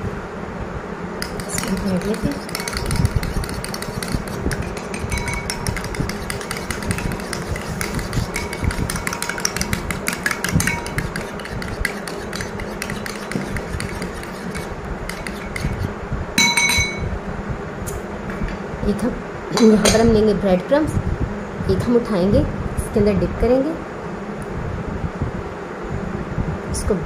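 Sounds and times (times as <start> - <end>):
spoon beating egg in glass bowl: 1.2 - 17.0
glass bowl ringing: 4.7 - 6.1, 16.4 - 17.1.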